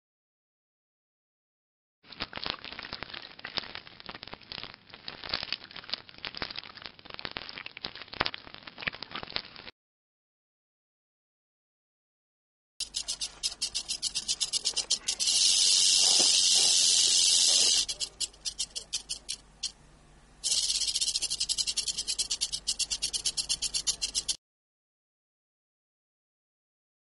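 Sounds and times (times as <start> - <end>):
rattlesnake tail rattling: 12.8 - 19.7, 20.4 - 24.4.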